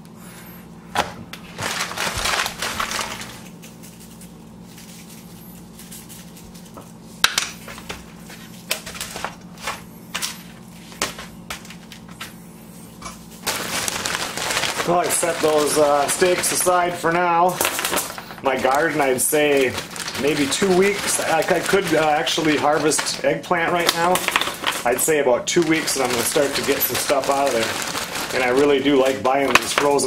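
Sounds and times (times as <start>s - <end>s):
low steady hum: 0.0s - 30.0s
paper towel rustling: 1.4s - 30.0s
seasoning shaker rattling: 1.8s - 7.0s, 13.5s - 16.9s, 17.5s - 30.0s.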